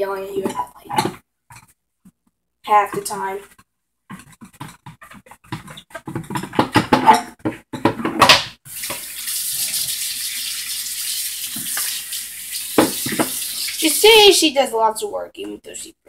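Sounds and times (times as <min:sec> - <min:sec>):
tap water running into sink: 0:08.7 - 0:14.2.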